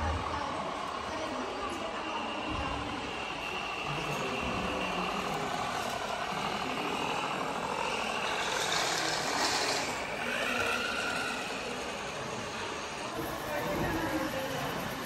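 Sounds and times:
hall background noise: 0.0 - 15.0
model vehicles running: 0.0 - 15.0.

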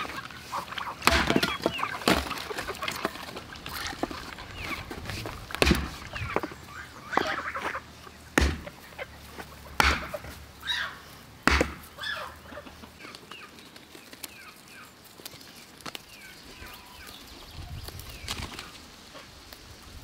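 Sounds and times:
geese calling: 0.0 - 15.0
chickens calling: 0.0 - 20.0
small birds chirping: 0.0 - 20.0
sharp knocks: 5.6 - 6.0, 8.4 - 8.8, 9.8 - 10.3, 11.4 - 11.9.

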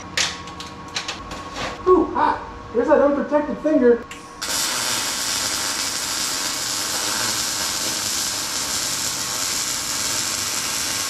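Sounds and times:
welding arc crackling sizzle: 4.4 - 11.0.

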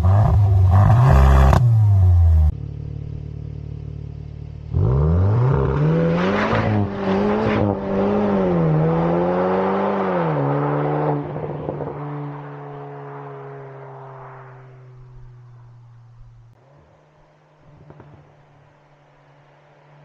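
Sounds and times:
car accelerating hard: 4.7 - 15.4.

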